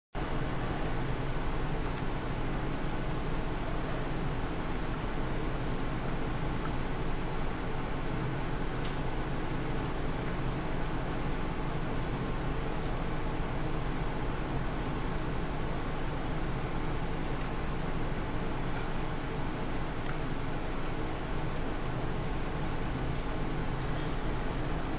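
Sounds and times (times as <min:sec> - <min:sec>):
cricket chirping: 0:00.2 - 0:01.0, 0:02.2 - 0:03.7, 0:06.0 - 0:06.4, 0:08.1 - 0:10.1, 0:10.7 - 0:12.2, 0:13.0 - 0:13.2, 0:14.3 - 0:14.5, 0:15.2 - 0:15.5, 0:16.8 - 0:17.0, 0:21.2 - 0:22.2, 0:22.8 - 0:24.4.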